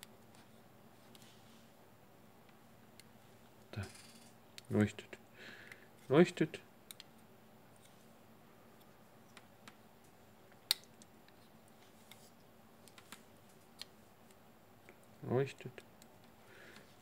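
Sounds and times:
small switches clicking: 0:06.9 - 0:07.1.

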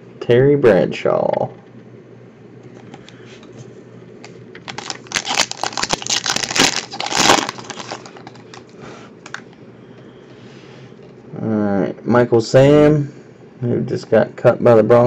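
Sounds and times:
foil wrapper crinkling and tearing: 0:04.6 - 0:09.4.

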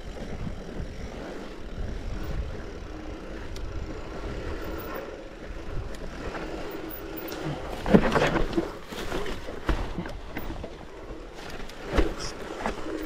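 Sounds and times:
wind on microphone: 0:00.0 - 0:03.0
bike tyres rumbling on dirt: 0:00.0 - 0:13.0.

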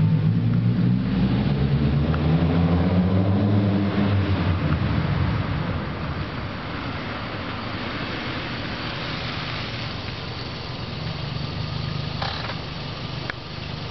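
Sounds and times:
car engine running: 0:04.4 - 0:13.9.

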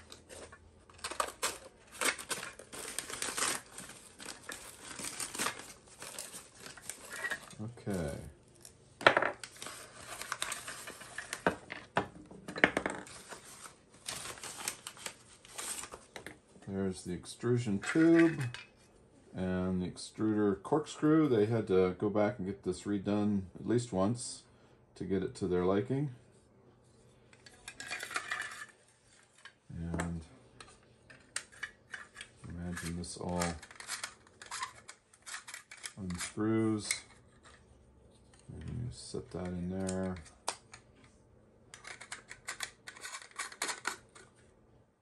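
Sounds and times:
packaging pouch rustling: 0:00.0 - 0:08.1, 0:13.1 - 0:16.0
metal parts knocking on wooden desk: 0:11.4 - 0:13.1
metal and plastic parts clinking: 0:17.8 - 0:18.7, 0:27.4 - 0:29.5, 0:30.6 - 0:37.6, 0:41.7 - 0:44.3.

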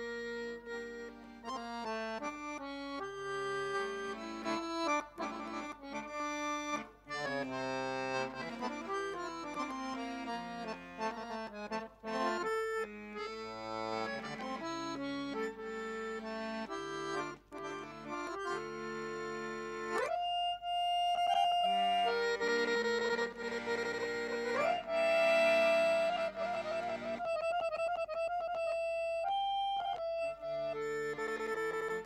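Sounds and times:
accordion playing fast runs: 0:00.0 - 0:32.0.

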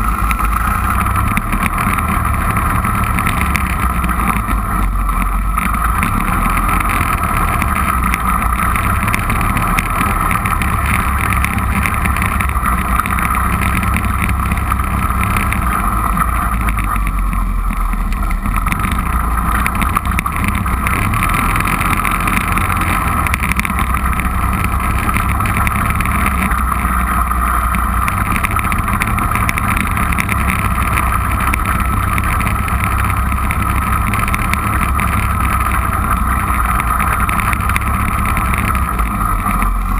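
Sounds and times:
atv engine running: 0:00.0 - 0:39.9.

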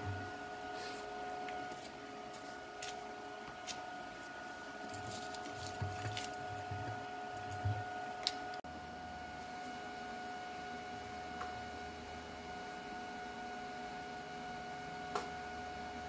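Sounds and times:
steady hum: 0:00.0 - 0:11.5.

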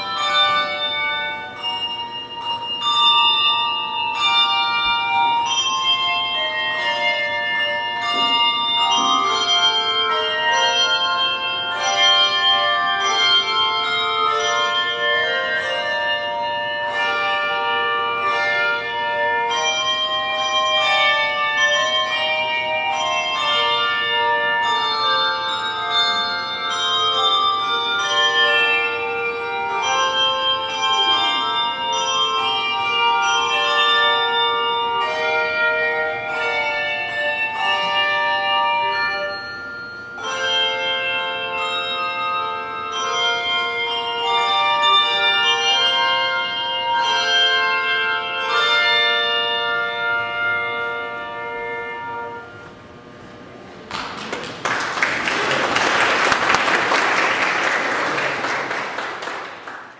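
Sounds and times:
handbell choir ringing chords: 0:00.0 - 0:59.9
audience applauding: 0:53.9 - 0:59.9.

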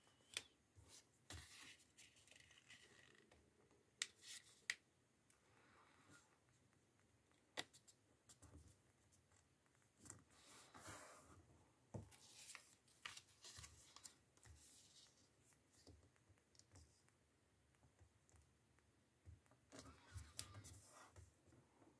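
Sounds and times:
paper rustling and crinkling: 0:12.1 - 0:15.2.

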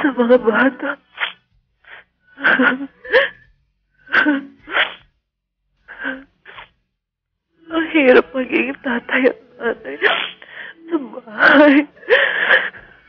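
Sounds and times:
woman sobbing over phone: 0:00.0 - 0:01.0, 0:02.4 - 0:03.4, 0:04.1 - 0:04.6, 0:08.9 - 0:12.9
woman speaking haltingly: 0:07.7 - 0:11.9.

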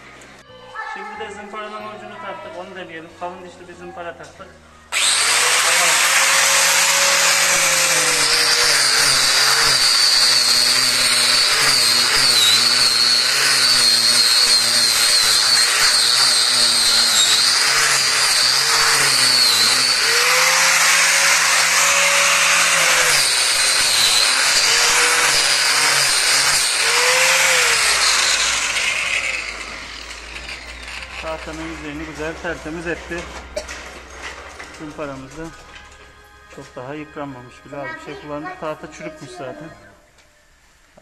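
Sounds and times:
angle grinder motor whine: 0:04.9 - 0:33.4
disc sanding wood: 0:05.0 - 0:33.2.

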